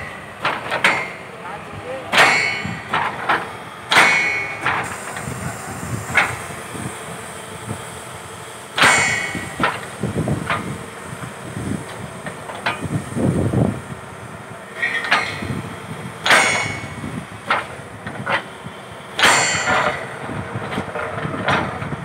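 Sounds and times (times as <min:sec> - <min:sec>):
steel striking steel clangs: 0:00.0 - 0:01.3, 0:02.1 - 0:05.3, 0:08.8 - 0:09.9, 0:14.8 - 0:15.5, 0:16.2 - 0:17.7, 0:19.2 - 0:20.1.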